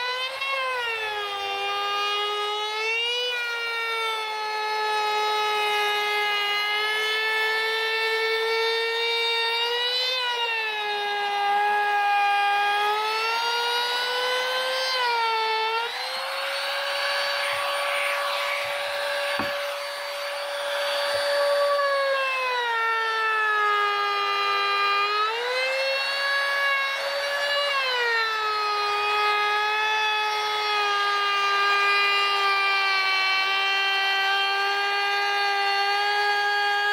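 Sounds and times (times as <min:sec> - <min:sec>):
trim router motor whine: 0:00.0 - 0:36.9
router cutting hiss: 0:13.0 - 0:22.4.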